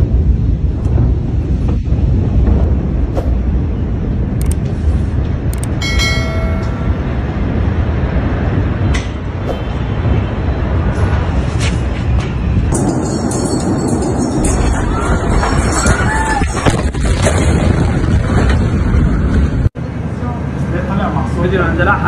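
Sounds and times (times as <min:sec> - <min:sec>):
explosion rumble: 0:00.0 - 0:19.8
sharp crackles and clicks: 0:00.6 - 0:05.8.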